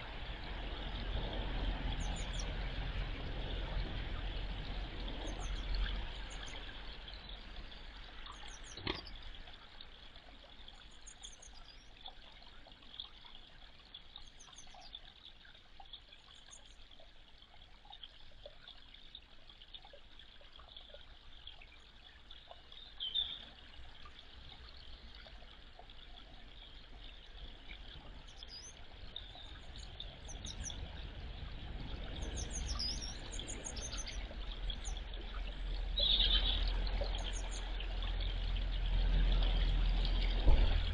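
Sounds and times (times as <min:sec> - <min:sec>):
water trickling in pond: 0:00.0 - 0:40.9
small birds chirping: 0:05.2 - 0:09.6, 0:10.7 - 0:12.2, 0:12.9 - 0:16.8, 0:21.5 - 0:23.6, 0:26.5 - 0:30.8, 0:32.2 - 0:38.4.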